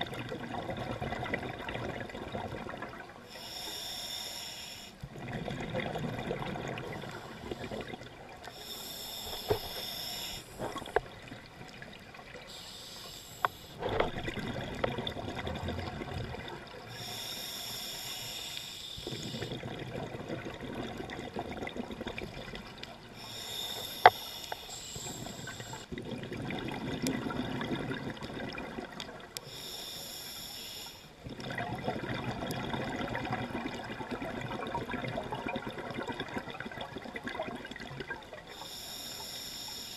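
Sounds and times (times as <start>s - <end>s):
scuba regulator hissing inhale: 3.3s - 5.0s, 8.5s - 10.9s, 12.4s - 13.8s, 16.8s - 19.6s, 23.2s - 25.9s, 29.4s - 31.2s, 38.5s - 39.9s.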